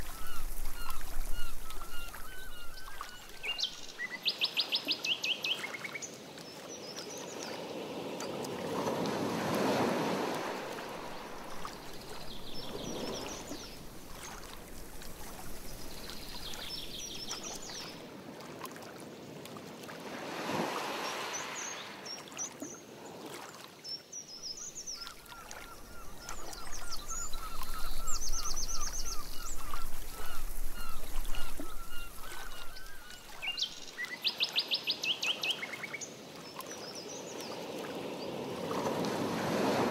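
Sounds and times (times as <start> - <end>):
paddle strokes swishing through water: 0.0 - 3.9, 5.5 - 23.8, 24.8 - 34.5, 37.4 - 39.9
water splashing: 0.0 - 4.1, 8.5 - 22.6, 24.8 - 34.1
songbirds chirping: 0.0 - 8.4, 10.6 - 18.0, 23.8 - 37.6.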